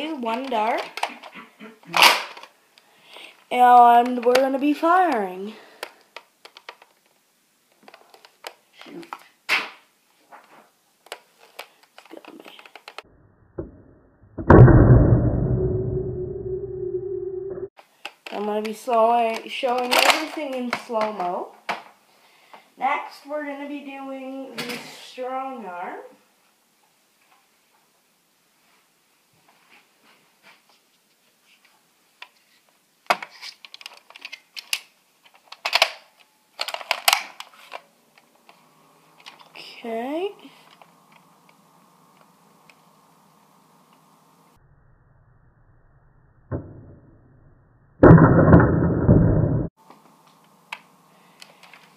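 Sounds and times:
loud knock: 14.4 - 16.5
dart blaster firing blast: 14.4 - 17.0, 48.0 - 49.7
deep drawn-out rumble: 14.4 - 17.7, 48.0 - 49.8.

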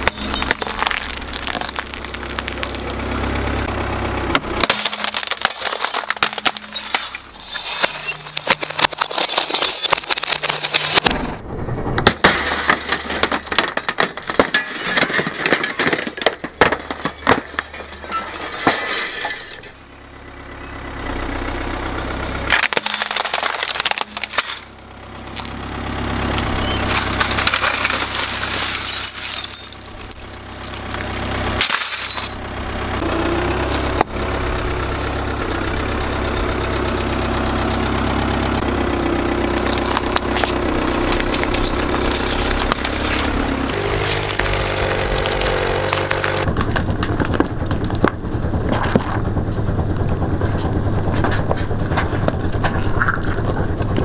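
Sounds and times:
glass clock face shattering: 0.0 - 3.2, 4.6 - 11.1, 18.2 - 19.8, 22.5 - 24.8, 26.6 - 32.6
car running: 0.0 - 18.4, 19.5 - 54.0.

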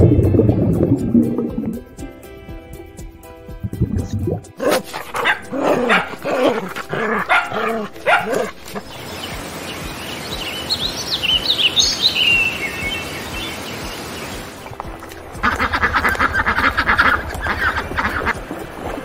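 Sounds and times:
dog barking and yelping: 4.6 - 8.9
high bird chirps: 8.7 - 14.5
steady hiss: 8.9 - 14.8.

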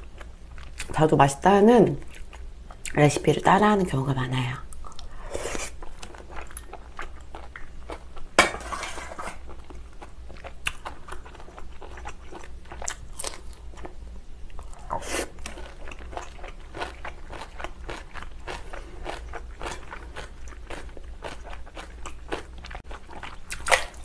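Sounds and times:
chewing and mouth smacking: 9.5 - 13.9, 14.5 - 24.0.

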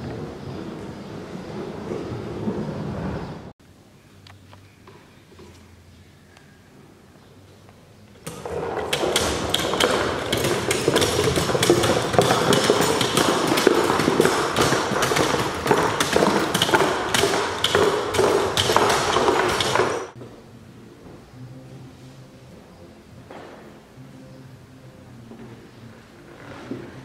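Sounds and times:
mechanical sculpture clattering on wood: 8.2 - 20.2.

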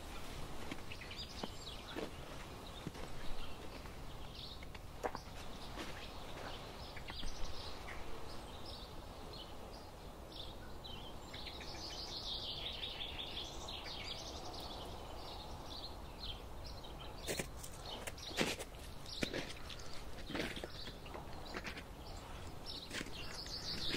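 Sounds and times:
footsteps crunching on snow: 0.0 - 8.0, 17.0 - 23.9
songbirds chirping and singing: 0.0 - 23.9.

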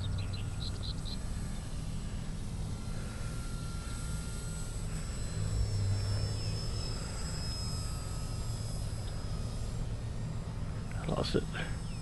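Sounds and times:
electric motor whine: 0.0 - 12.0.

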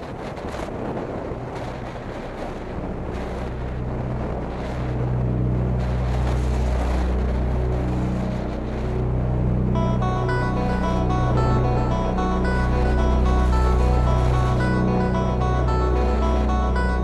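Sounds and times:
wind rushing over microphone: 0.0 - 17.0
background music with bass: 3.8 - 17.0.

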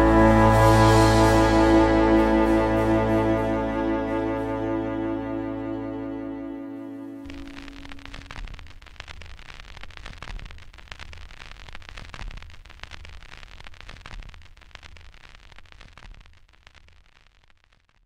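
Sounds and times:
low rumble: 0.0 - 8.4
vinyl record crackle: 0.0 - 18.0.

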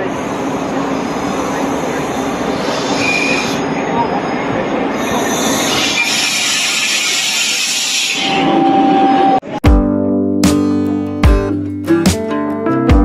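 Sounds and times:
train brakes squealing: 0.0 - 9.4
hissing brake screech: 2.1 - 4.2, 4.9 - 9.3.

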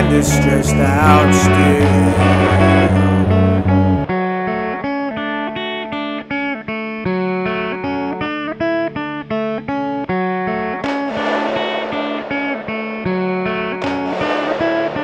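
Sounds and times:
held low note: 0.0 - 4.2, 11.0 - 15.0
guitar picking a melody: 0.0 - 15.0.

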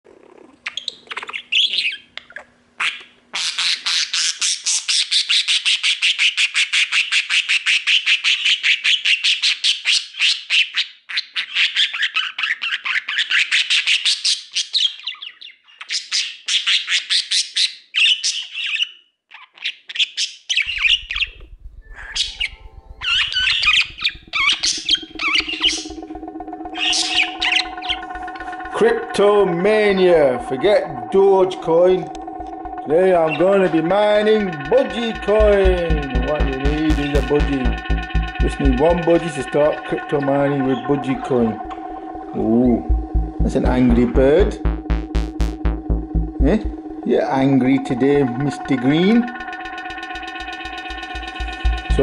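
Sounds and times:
budgerigar chattering and squawking: 0.7 - 21.4, 22.0 - 25.9
music with a steady beat: 24.9 - 52.0.

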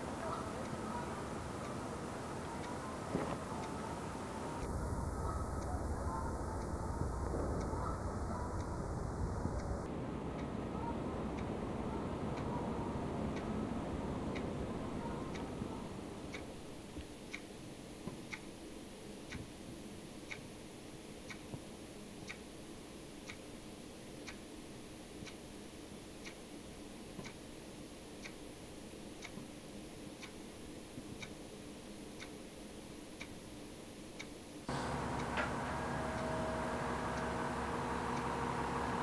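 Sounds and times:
faint steady hum: 0.0 - 39.0
regular ticking: 14.2 - 22.6, 23.2 - 32.5, 33.1 - 39.0.

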